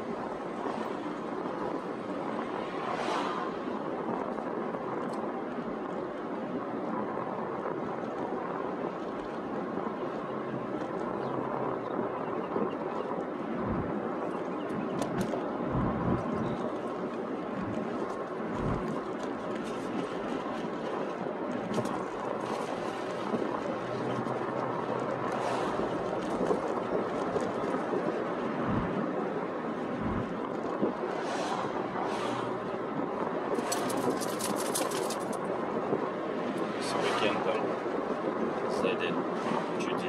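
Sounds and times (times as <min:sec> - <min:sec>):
car road and engine noise: 0:00.0 - 0:40.0
low thumps: 0:15.1 - 0:16.5, 0:18.5 - 0:19.0, 0:28.6 - 0:29.0, 0:30.0 - 0:30.5.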